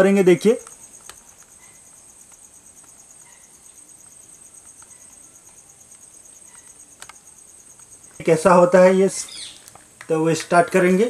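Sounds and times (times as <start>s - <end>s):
insect chirring: 0.0s - 11.0s
plastic clicks: 7.0s - 7.9s.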